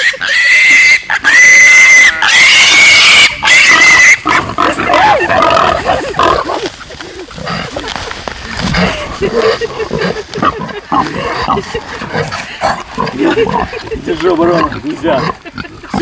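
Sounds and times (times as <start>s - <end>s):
piglet squealing: 0.0s - 6.5s.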